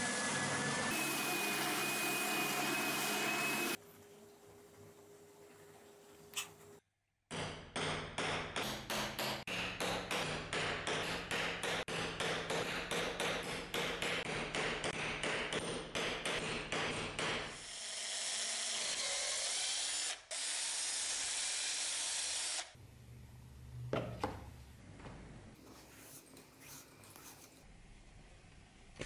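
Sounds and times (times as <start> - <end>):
cordless drill running: 17.6 - 22.8.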